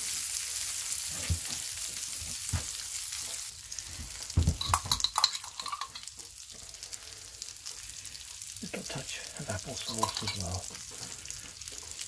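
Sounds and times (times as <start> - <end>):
meat sizzling in a skillet: 0.0 - 12.0
sharp clicks and clinks: 4.5 - 6.1, 9.8 - 10.6.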